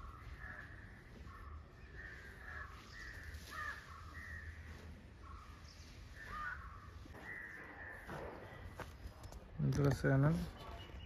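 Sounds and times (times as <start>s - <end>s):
crows cawing: 0.0s - 8.8s.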